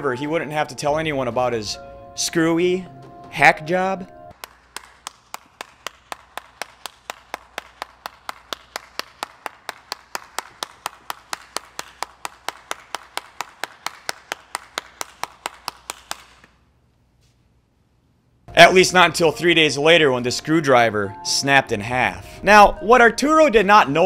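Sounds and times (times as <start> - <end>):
person clapping hands: 4.3 - 16.6.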